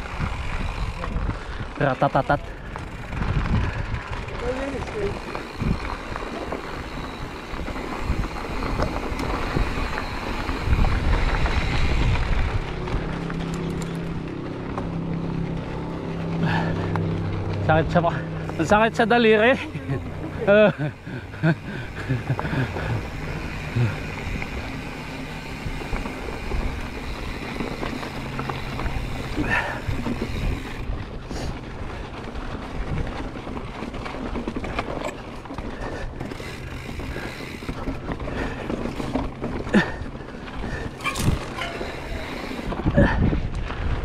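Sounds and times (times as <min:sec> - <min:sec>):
bike rattling: 0:00.0 - 0:44.0
tyres crunching on gravel: 0:00.0 - 0:44.0
wind on microphone: 0:02.9 - 0:04.5, 0:05.4 - 0:14.2, 0:40.7 - 0:44.0.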